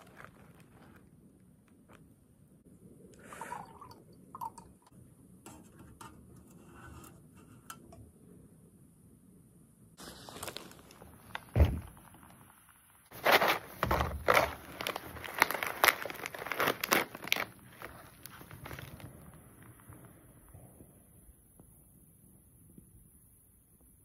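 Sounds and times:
foil pouch crinkling: 0:00.0 - 0:01.1, 0:10.0 - 0:12.4, 0:13.1 - 0:19.9
thump: 0:11.5 - 0:12.0.

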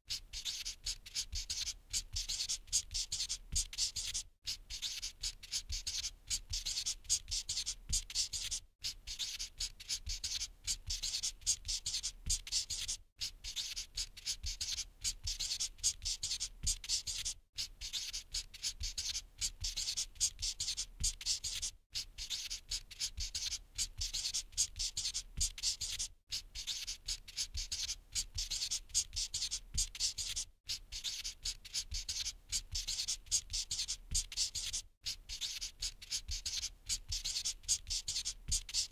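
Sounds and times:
marker scribbling on whiteboard: 0:00.1 - 0:38.9.

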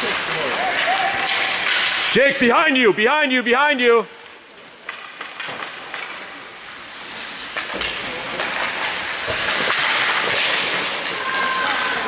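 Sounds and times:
skate blades scraping ice: 0:00.0 - 0:02.9, 0:04.3 - 0:12.0
hockey sticks and puck clacking: 0:00.0 - 0:12.0.

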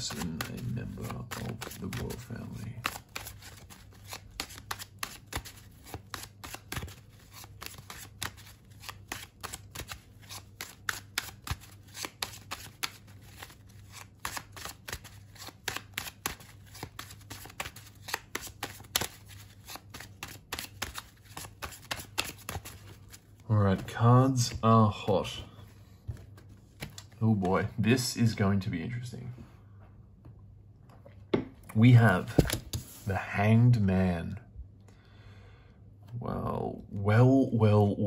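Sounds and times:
cards being shuffled: 0:00.0 - 0:27.7, 0:32.2 - 0:33.1.

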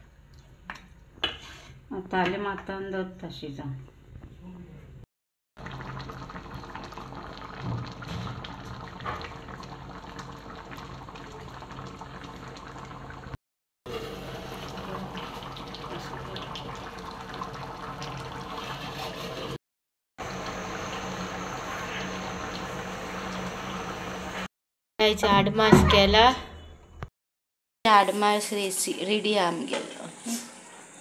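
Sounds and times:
curry bubbling in pot: 0:05.6 - 0:19.6.

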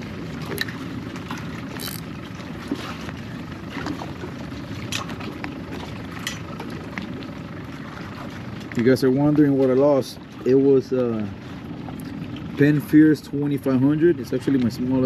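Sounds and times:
small waves lapping against hull: 0:00.0 - 0:15.0
water splashes: 0:00.0 - 0:15.0.

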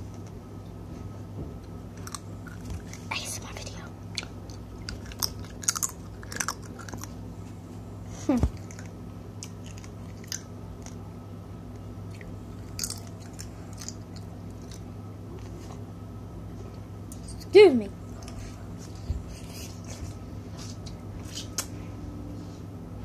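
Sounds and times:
person chewing crab: 0:04.1 - 0:07.2, 0:12.1 - 0:14.9.

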